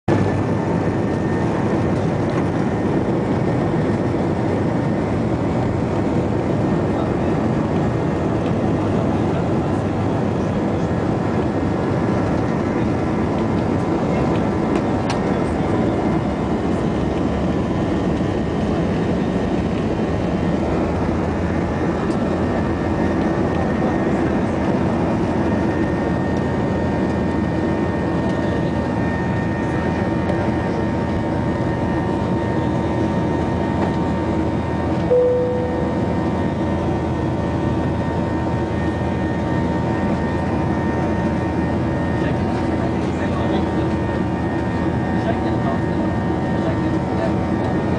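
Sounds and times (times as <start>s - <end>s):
jet engines roaring in cabin: 0.1s - 47.9s
short cabin tone: 35.1s - 36.4s.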